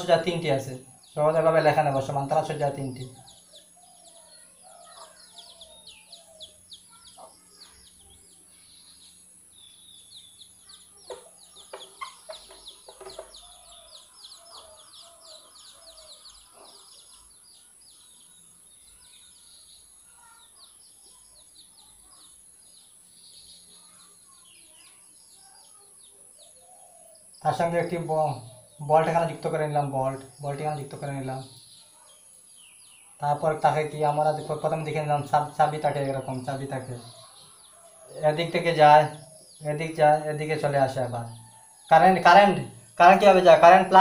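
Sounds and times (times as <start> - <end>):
faint birdsong chirps: 0.0 - 44.0
chickens clucking: 10.5 - 17.2.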